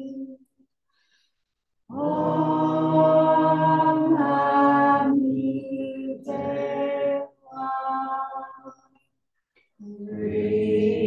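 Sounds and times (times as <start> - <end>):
voices chanting in unison: 1.9 - 8.8, 9.8 - 11.0.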